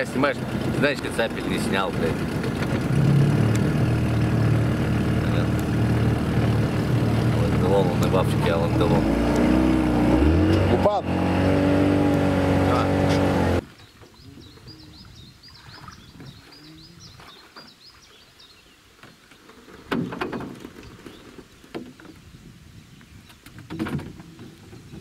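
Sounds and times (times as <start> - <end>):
outboard motor running: 0.0 - 13.6
bird chirping: 13.8 - 19.5.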